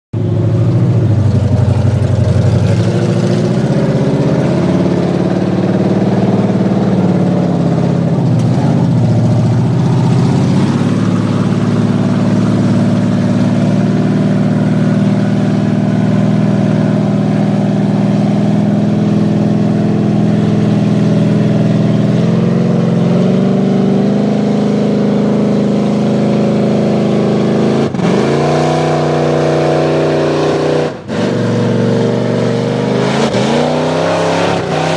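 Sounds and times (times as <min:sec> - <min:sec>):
truck engine revving: 0:00.2 - 0:34.9.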